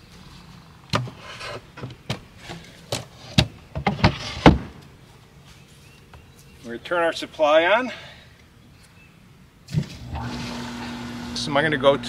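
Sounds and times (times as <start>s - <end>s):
wood scraping: 0.2s - 4.8s.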